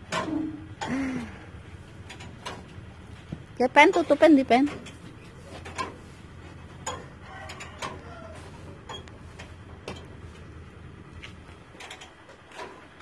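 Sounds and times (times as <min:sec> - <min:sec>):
sharp mechanical clicks and knocks: 0:00.0 - 0:01.0, 0:02.0 - 0:06.1, 0:06.7 - 0:08.0, 0:08.7 - 0:10.2, 0:11.2 - 0:13.0
steady low hum: 0:00.0 - 0:13.0.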